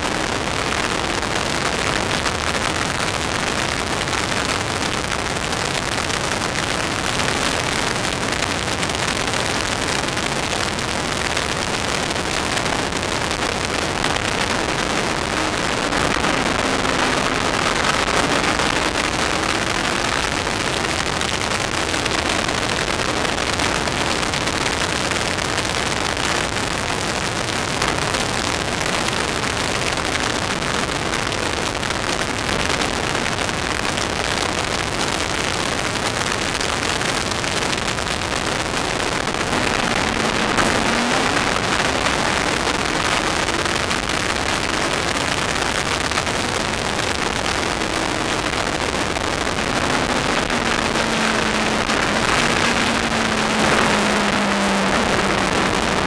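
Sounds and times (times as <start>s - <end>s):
wind rushing over microphone: 0.0s - 25.7s, 36.6s - 56.0s
racing car engine: 39.0s - 43.5s, 49.5s - 56.0s.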